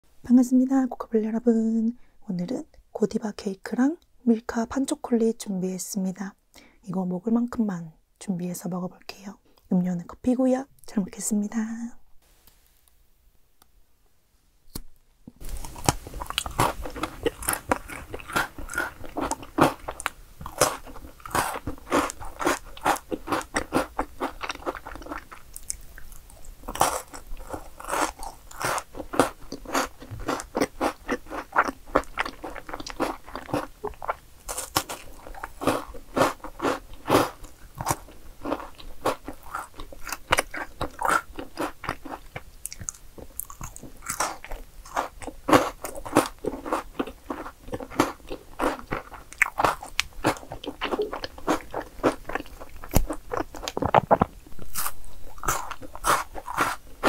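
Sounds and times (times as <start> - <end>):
chocolate snapping and crunching: 14.7 - 57.0.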